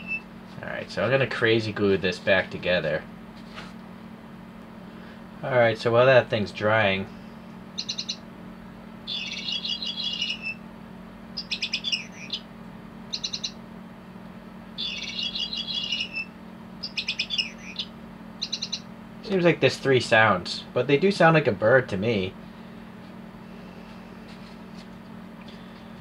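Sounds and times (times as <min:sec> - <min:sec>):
electronic bird chirps: 0:00.0 - 0:00.3, 0:07.8 - 0:08.3, 0:09.0 - 0:10.6, 0:11.4 - 0:12.5, 0:13.1 - 0:13.6, 0:14.8 - 0:18.9.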